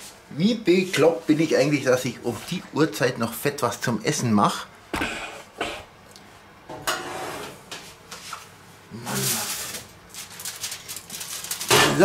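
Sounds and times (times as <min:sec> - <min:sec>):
baking tray sliding on metal rails: 0:06.8 - 0:07.6.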